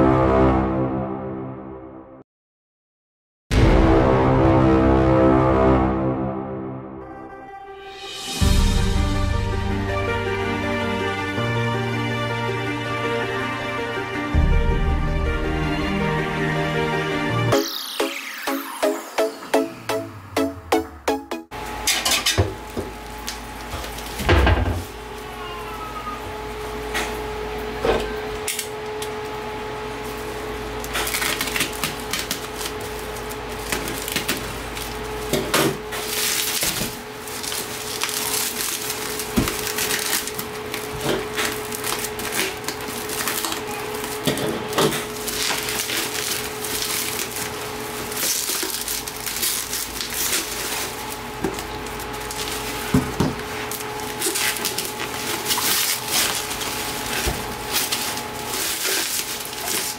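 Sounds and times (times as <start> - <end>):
plastic wrap crinkling: 22.6 - 26.9, 30.0 - 59.9.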